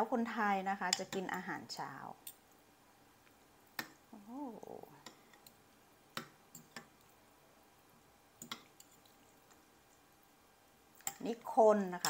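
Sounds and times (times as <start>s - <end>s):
clicks and taps of handled objects: 3.2s - 4.0s, 8.4s - 9.6s
person humming: 4.2s - 5.0s.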